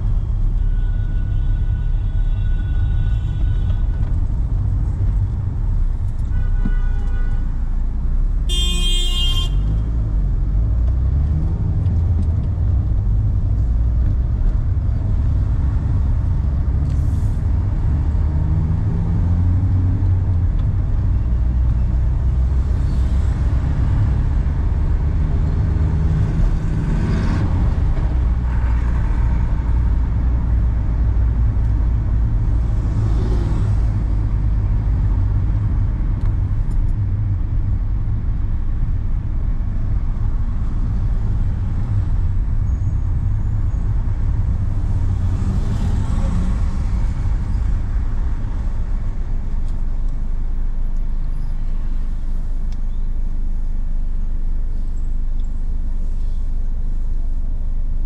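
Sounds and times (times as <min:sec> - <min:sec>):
car driving low rumble: 0:00.0 - 0:58.0
car horn honking: 0:06.3 - 0:07.6, 0:08.5 - 0:09.8.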